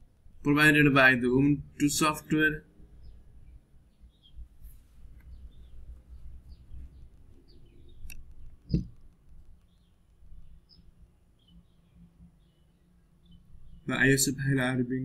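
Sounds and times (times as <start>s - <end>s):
small birds chirping: 0.0s - 15.0s
dull thump: 8.7s - 9.0s.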